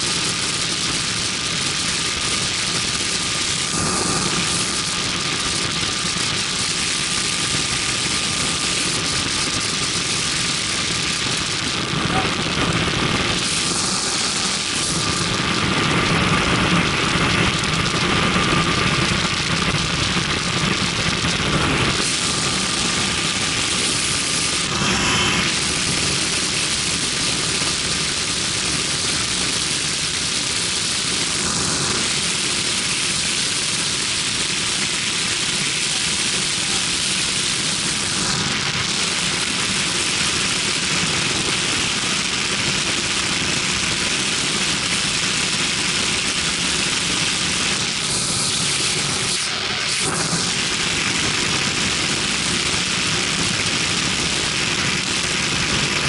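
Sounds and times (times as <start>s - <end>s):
aircraft engine and propeller: 0.0s - 56.0s
wind rushing past cockpit: 2.8s - 28.1s.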